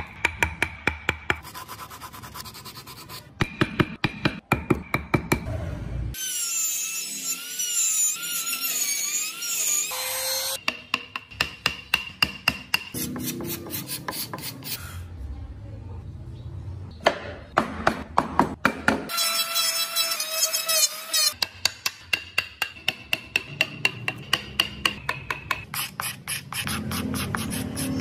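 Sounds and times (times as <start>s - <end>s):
chisel tapping on wood: 10.6s - 13.0s, 21.4s - 25.7s.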